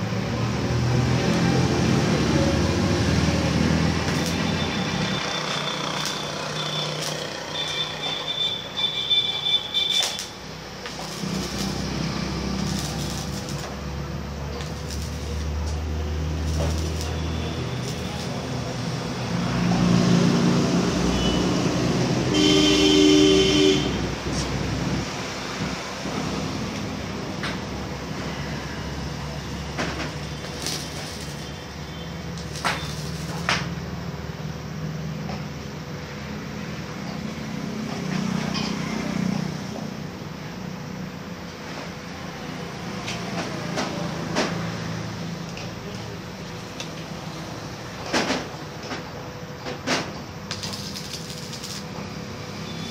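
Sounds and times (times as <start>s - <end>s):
low workshop hum: 0.0s - 52.9s
vehicle horn blast: 22.3s - 24.1s.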